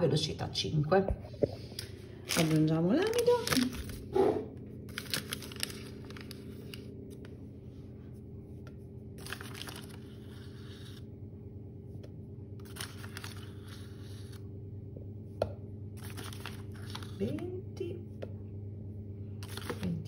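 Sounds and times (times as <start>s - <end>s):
steady low hum: 0.0s - 20.0s
bag crinkling: 2.1s - 4.2s, 4.9s - 7.2s, 9.2s - 10.4s, 12.6s - 13.7s, 16.0s - 17.2s, 19.4s - 20.0s.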